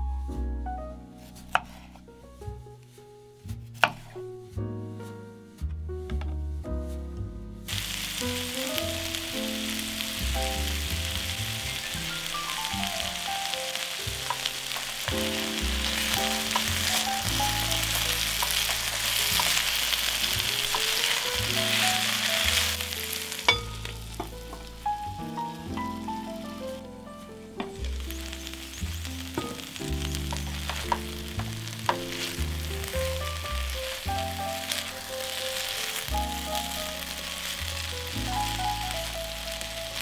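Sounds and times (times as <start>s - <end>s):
vegetables sizzling in oil: 7.7s - 26.8s, 27.4s - 40.0s
wooden utensil stirring: 14.0s - 24.7s, 29.3s - 34.0s.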